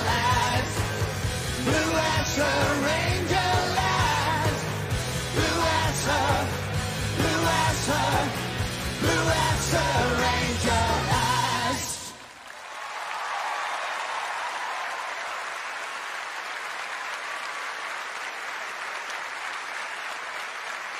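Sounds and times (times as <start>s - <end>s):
live pop-rock band: 0.0s - 12.2s
man singing: 0.0s - 12.2s
audience applauding: 11.2s - 20.9s.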